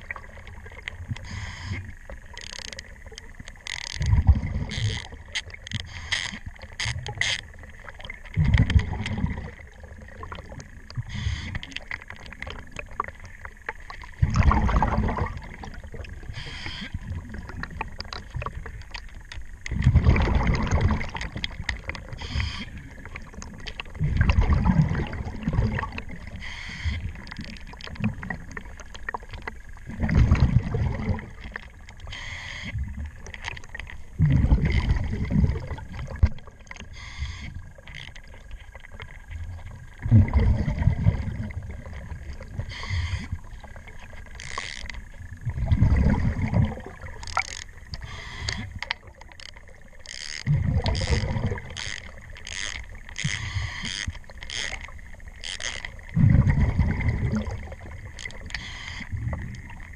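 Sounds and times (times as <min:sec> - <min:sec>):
faint clicking: 0:00.0 - 0:14.2, 0:15.4 - 0:19.9, 0:20.6 - 0:24.4, 0:25.6 - 0:40.0, 0:41.4 - 0:45.6, 0:46.9 - 0:56.2, 0:57.4 - 0:59.9
regulator exhaled bubbles: 0:08.3 - 0:11.6, 0:14.2 - 0:17.8, 0:19.7 - 0:23.3, 0:23.9 - 0:27.4, 0:29.9 - 0:31.5, 0:34.2 - 0:37.6, 0:40.0 - 0:43.9, 0:45.4 - 0:48.8, 0:50.4 - 0:52.3, 0:56.1 - 0:59.9.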